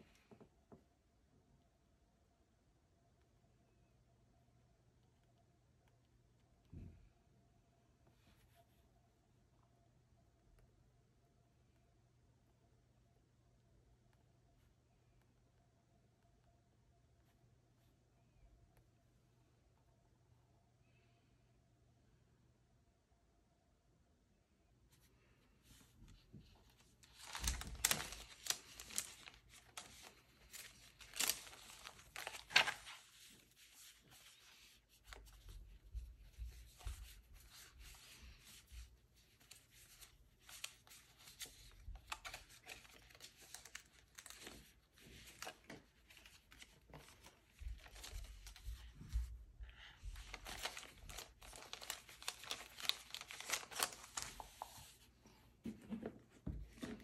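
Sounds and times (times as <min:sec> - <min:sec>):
paper rustling: 0:25.7 - 0:57.0
paper and plastic crackling: 0:26.6 - 0:35.4, 0:36.0 - 0:49.2, 0:50.1 - 0:55.0.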